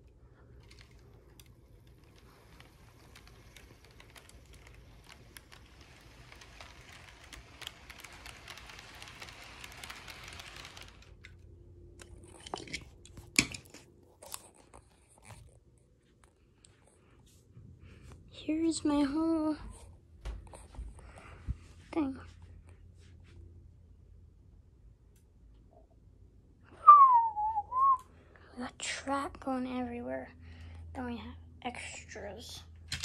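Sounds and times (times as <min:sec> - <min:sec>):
model train wheels clicking on rails: 0:00.0 - 0:13.6.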